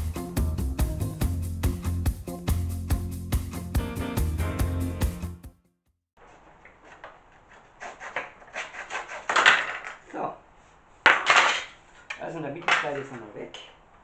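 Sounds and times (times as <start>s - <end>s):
wood piece clattering: 6.5s - 10.2s, 11.0s - 13.4s
hacksaw cutting wood: 6.7s - 9.8s.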